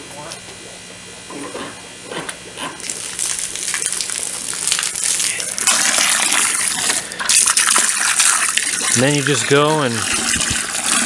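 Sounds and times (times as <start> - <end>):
hose spraying water into bucket: 2.8 - 11.0.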